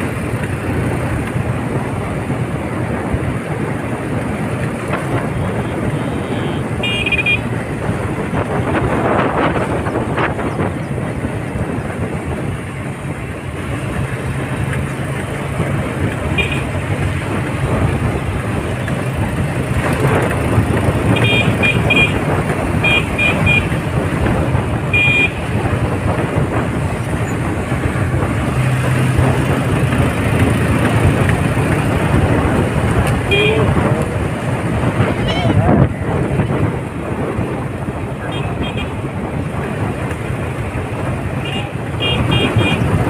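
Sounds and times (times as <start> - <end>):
motorcycle engine running: 0.0 - 43.0
wind rushing: 7.4 - 43.0
horn short beeps: 33.3 - 33.7.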